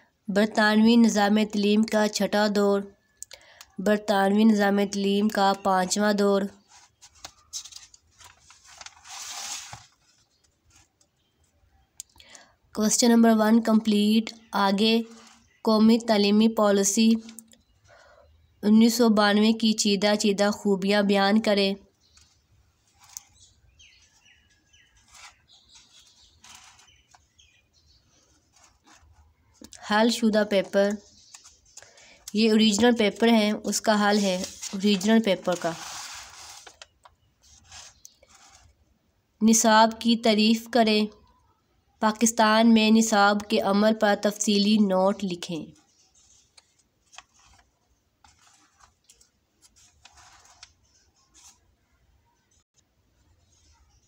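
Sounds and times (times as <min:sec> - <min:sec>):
book page turning: 0:06.6 - 0:11.4, 0:22.1 - 0:27.6, 0:28.2 - 0:29.7, 0:30.4 - 0:38.8, 0:45.7 - 0:51.7
bird chirping: 0:21.8 - 0:32.9, 0:36.8 - 0:38.7.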